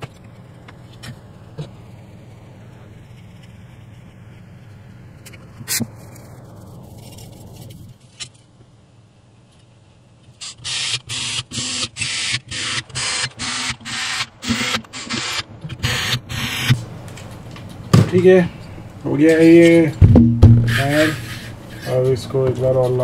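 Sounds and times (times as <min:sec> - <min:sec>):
faint falling whine: 0:00.0 - 0:23.0
faint steady hum: 0:00.0 - 0:23.0
hand scraping on wire: 0:20.7 - 0:23.0.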